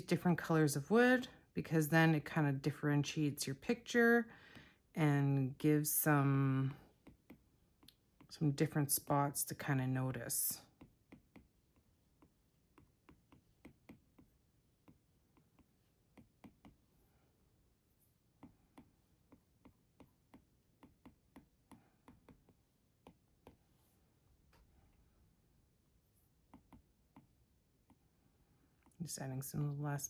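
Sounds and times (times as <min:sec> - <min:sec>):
stylus tapping on glass screen: 0:12.2 - 0:16.8, 0:18.4 - 0:23.6.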